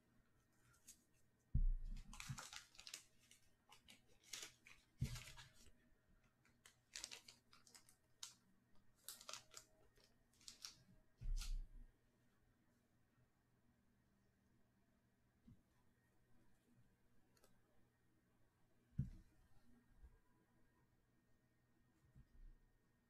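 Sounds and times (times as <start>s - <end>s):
plastic wrapping crinkling: 1.8s - 5.7s, 6.4s - 8.4s, 9.0s - 11.6s.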